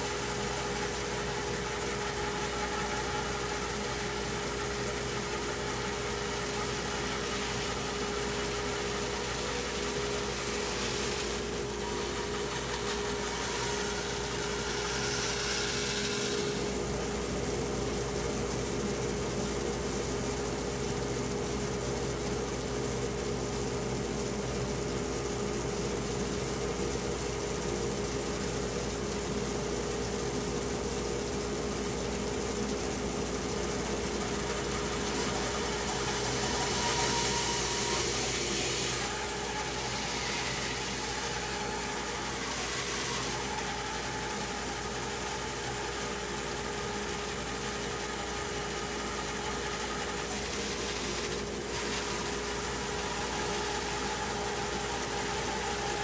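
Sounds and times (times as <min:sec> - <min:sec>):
machine motor running: 0:32.4 - 0:56.0.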